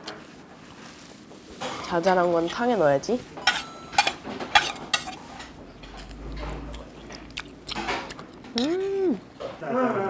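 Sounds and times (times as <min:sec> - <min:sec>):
eating sounds: 0:04.6 - 0:10.0
person humming: 0:08.5 - 0:10.0.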